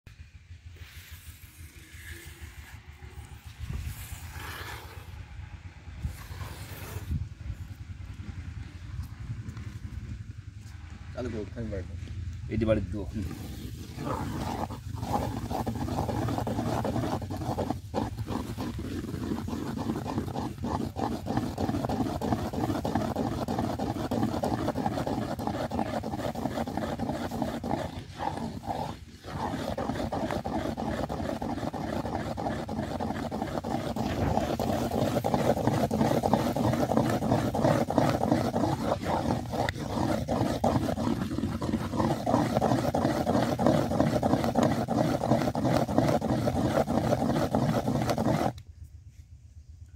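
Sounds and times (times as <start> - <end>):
stick stirring thick syrup: 13.2 - 48.6.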